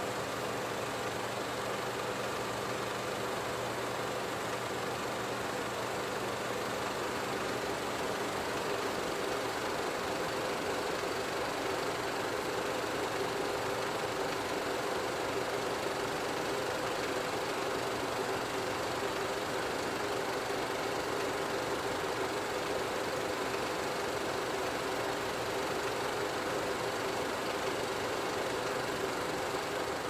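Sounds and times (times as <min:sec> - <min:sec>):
film projector whirring: 0:00.0 - 0:30.0.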